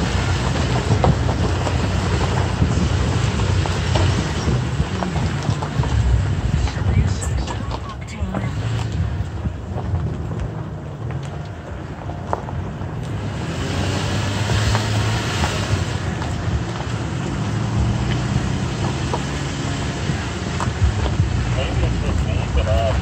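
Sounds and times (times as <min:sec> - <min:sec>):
pickup engine drone: 0:00.0 - 0:23.0
rushing noise: 0:00.0 - 0:23.0.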